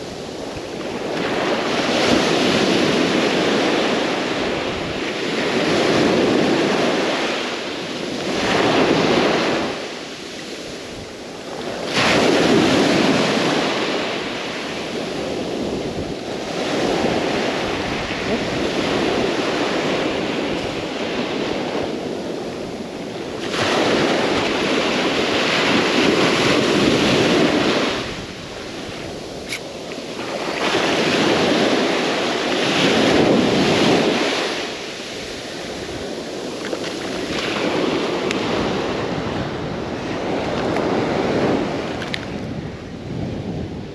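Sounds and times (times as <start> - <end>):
ocean surf breaking on beach: 0.0 - 43.9.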